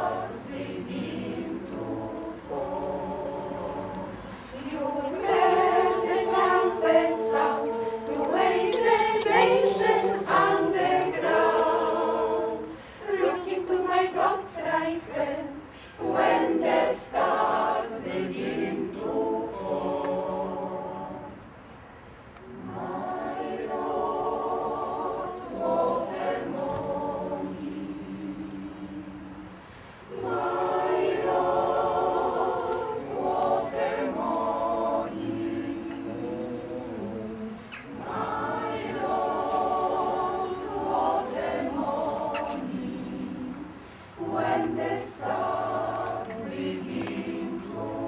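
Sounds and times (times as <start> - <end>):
choir singing a cappella: 0.0 - 21.6, 22.4 - 48.0.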